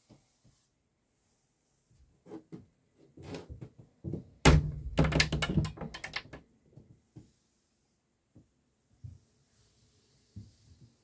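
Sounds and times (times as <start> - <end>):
heavy thunk: 4.5 - 5.2
sharp knocks and clicks: 4.5 - 6.4.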